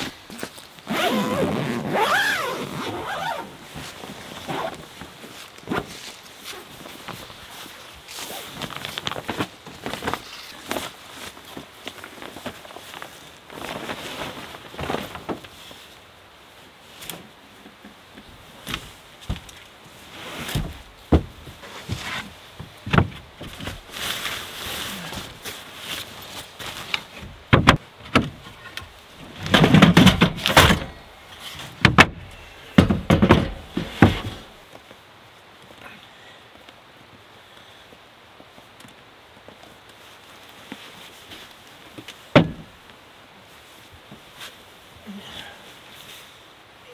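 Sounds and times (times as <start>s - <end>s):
rustling: 0.0s - 35.8s
knocks and thumps: 20.6s - 23.8s, 27.2s - 28.4s, 29.4s - 30.9s, 31.8s - 34.5s, 42.3s - 42.7s.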